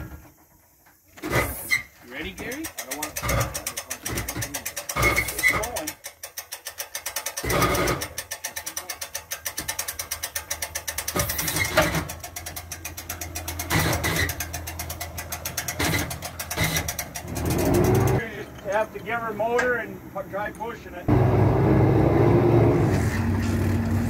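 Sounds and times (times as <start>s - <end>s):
hull knocking and scraping on trailer: 0.0s - 19.8s
winch ratchet clicking: 2.2s - 18.9s.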